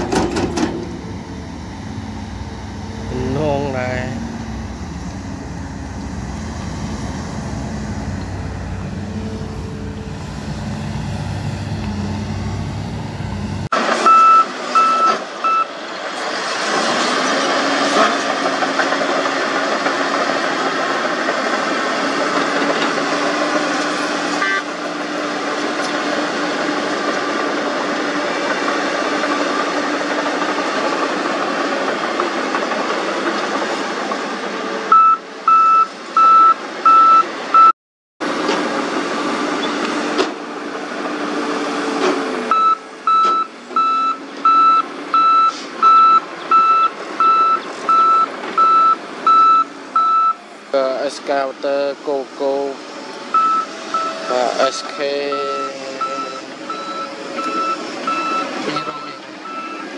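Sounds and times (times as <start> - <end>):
bulldozer diesel engine droning: 0.0 - 59.9
reversing alarm beeping: 14.0 - 15.7, 34.9 - 37.7, 42.5 - 50.4, 53.3 - 59.9.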